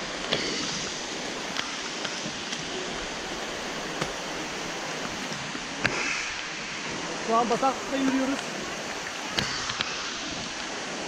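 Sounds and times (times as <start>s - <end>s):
heavy rain hissing: 0.0s - 11.0s
sharp rain taps: 1.4s - 6.6s.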